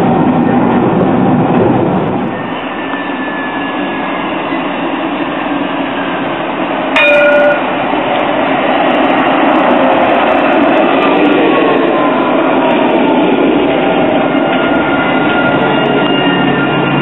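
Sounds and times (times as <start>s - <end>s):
tram rolling: 0.0s - 17.0s
tram warning bell ding: 2.3s - 5.2s, 6.9s - 7.9s, 15.0s - 17.0s.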